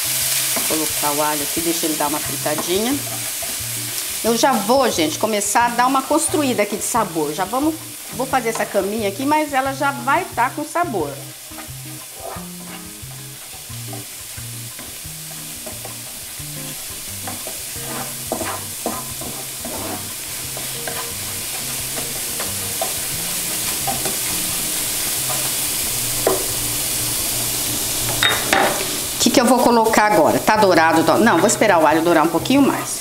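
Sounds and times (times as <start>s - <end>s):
garlic sizzling in oil: 0.0s - 33.0s
spoon scraping and tapping pan: 1.9s - 4.2s, 7.7s - 9.0s, 11.2s - 25.6s, 26.2s - 26.6s.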